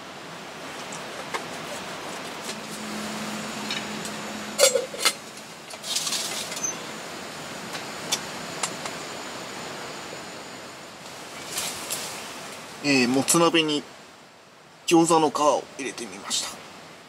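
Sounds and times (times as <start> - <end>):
steady hiss: 0.0 - 17.0
metal clanks: 3.6 - 6.8.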